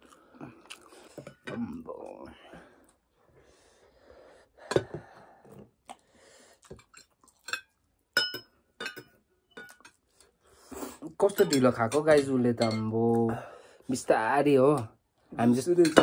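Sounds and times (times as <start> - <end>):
cutlery clinking on ceramic plates: 7.0 - 10.0, 11.2 - 13.0, 15.8 - 16.0.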